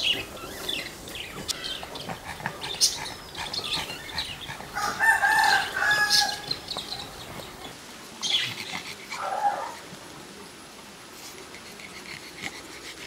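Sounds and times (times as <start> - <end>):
rooster crowing: 4.8 - 6.6.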